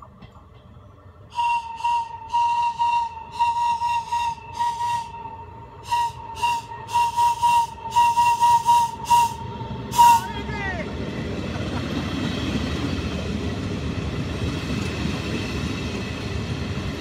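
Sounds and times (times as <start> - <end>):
locomotive whistle blasts: 1.3 - 10.4.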